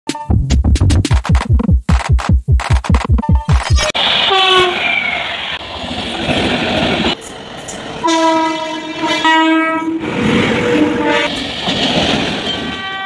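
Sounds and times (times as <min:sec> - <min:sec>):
electronic music: 0:00.1 - 0:04.0
passing train rumble: 0:03.8 - 0:13.0
train horn: 0:04.3 - 0:05.0, 0:08.0 - 0:11.3, 0:12.6 - 0:13.0.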